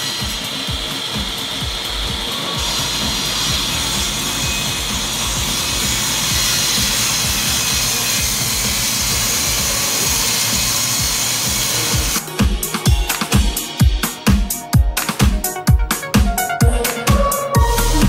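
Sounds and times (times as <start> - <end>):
table saw cutting wood: 0.0 - 12.4
background music: 0.0 - 18.0.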